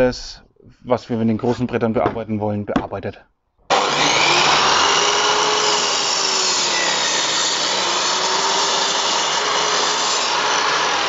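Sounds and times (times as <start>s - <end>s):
mitre saw cutting wood: 3.7s - 11.0s.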